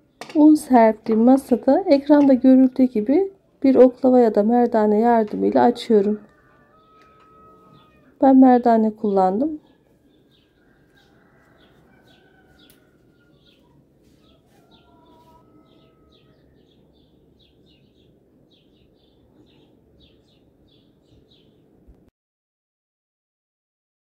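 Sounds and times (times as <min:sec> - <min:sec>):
bird chirping: 0:06.2 - 0:08.1, 0:09.0 - 0:21.7.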